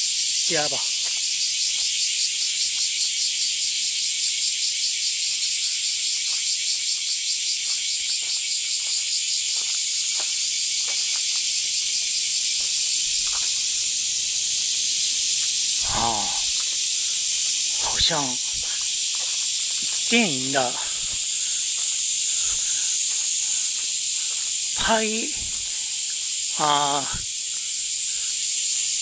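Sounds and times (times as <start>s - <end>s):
cicadas shrilling: 0.0s - 29.0s
person speaking: 0.4s - 1.0s, 15.8s - 16.6s, 17.7s - 18.7s, 20.0s - 21.2s, 24.8s - 25.8s, 26.5s - 27.3s
faint footsteps: 0.8s - 3.0s, 5.3s - 29.0s.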